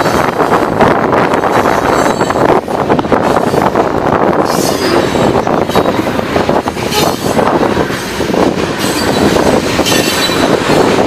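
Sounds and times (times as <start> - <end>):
steel wheels rumbling on rails: 0.0 - 11.0
wheel squeal: 8.8 - 10.6.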